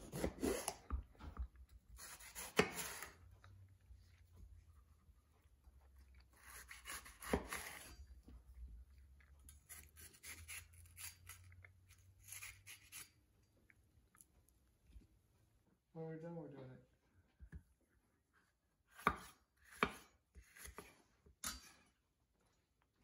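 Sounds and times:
knife slicing pepper: 0:00.0 - 0:00.9, 0:02.0 - 0:03.2, 0:06.4 - 0:08.0, 0:09.5 - 0:13.2, 0:18.9 - 0:21.6.

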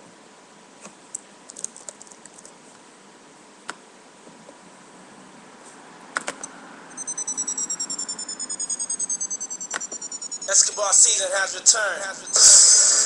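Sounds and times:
computer keyboard clicks: 0:01.5 - 0:02.6
pulsing electronic sound falling: 0:07.0 - 0:10.8.

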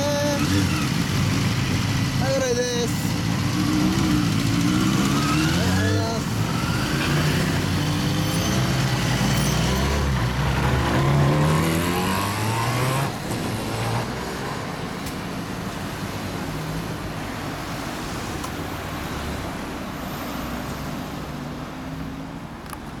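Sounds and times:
motorcycle accelerating: 0:00.0 - 0:16.1
road traffic noise: 0:00.0 - 0:23.0.

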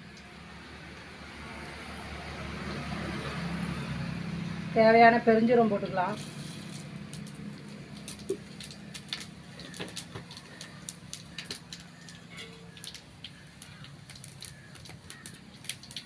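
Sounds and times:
spices frying in hot oil: 0:05.5 - 0:16.0
wood fire crackling: 0:06.1 - 0:16.0.

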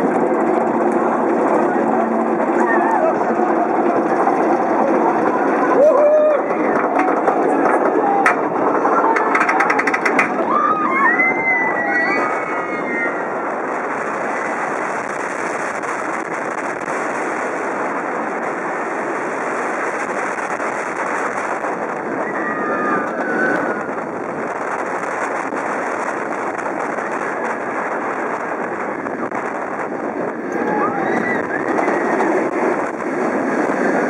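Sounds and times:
roller coaster roaring on track: 0:00.0 - 0:34.0
wind on microphone: 0:00.0 - 0:34.0
riders screaming: 0:05.7 - 0:06.7, 0:10.3 - 0:13.4, 0:22.1 - 0:24.0, 0:30.5 - 0:32.5.

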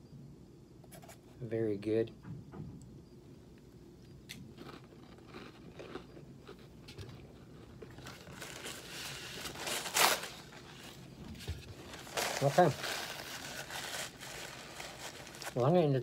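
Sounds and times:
cracker crunching: 0:03.5 - 0:16.0
paper towel tearing: 0:08.1 - 0:11.0, 0:11.9 - 0:16.0.

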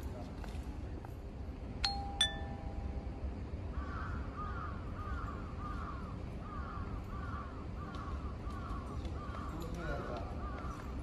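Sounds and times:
crow cawing: 0:03.7 - 0:11.0.

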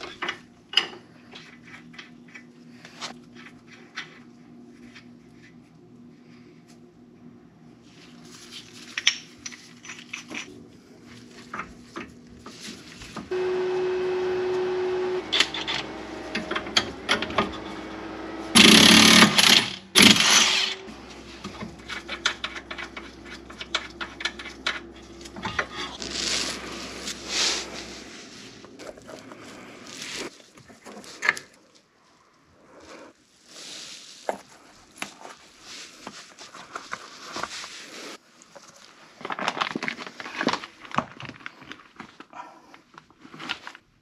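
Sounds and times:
impact wrench whining and hammering: 0:13.3 - 0:28.8.

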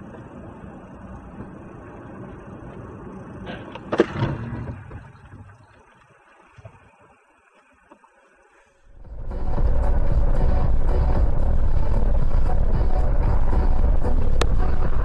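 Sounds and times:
car road and engine noise: 0:00.0 - 0:05.1, 0:08.9 - 0:15.0.

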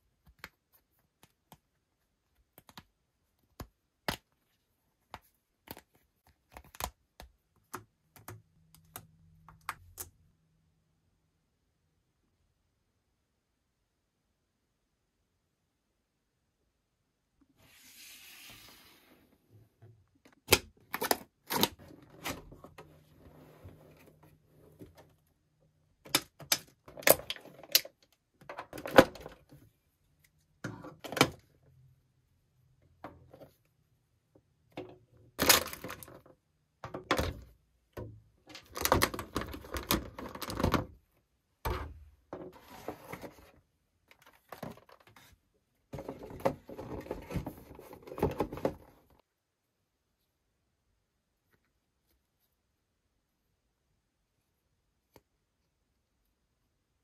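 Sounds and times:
plastic and cardboard rustling: 0:41.7 - 0:45.4, 0:46.0 - 0:49.2.

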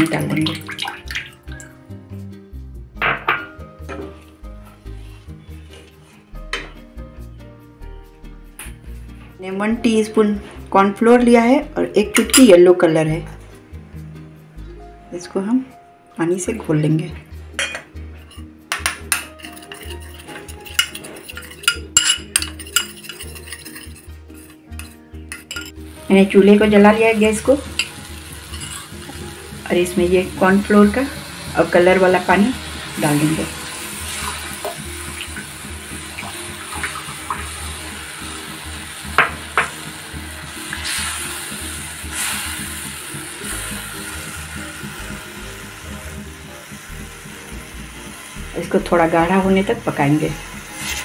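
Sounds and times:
spoon clinking against ceramic bowl: 0:17.6 - 0:25.8, 0:27.7 - 0:28.9
spatula stirring in a wok: 0:19.1 - 0:26.0, 0:27.6 - 0:29.5.

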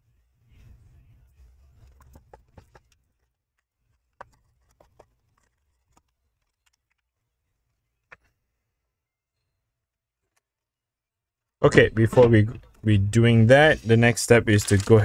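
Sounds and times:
faint clicks and taps: 0:01.8 - 0:07.1.

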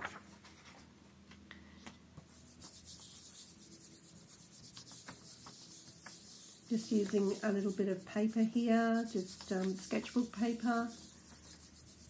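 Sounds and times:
hand rubbing paper: 0:02.2 - 0:12.0.

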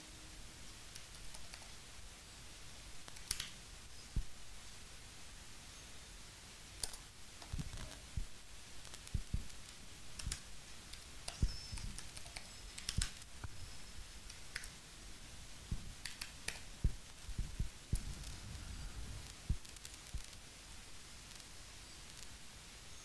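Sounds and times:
computer keyboard typing: 0:00.9 - 0:01.7, 0:03.1 - 0:03.6, 0:06.8 - 0:08.0, 0:10.1 - 0:13.3, 0:16.0 - 0:16.7.

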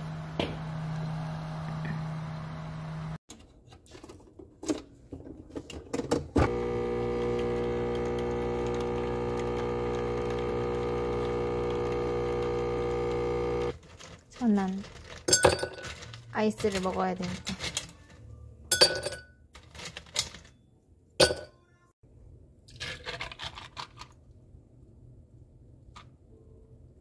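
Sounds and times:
coffee machine motor whirring: 0:06.4 - 0:13.8.

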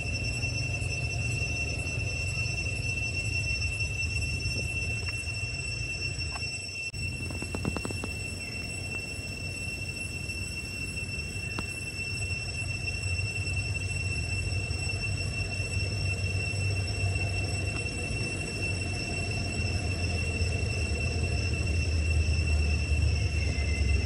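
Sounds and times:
high-pitched whines: 0:00.0 - 0:24.0.

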